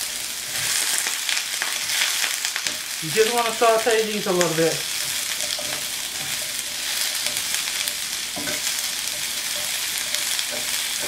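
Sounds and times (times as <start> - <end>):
vegetables sizzling in a pan: 0.0 - 11.0
tongs tapping a pan: 4.9 - 11.0.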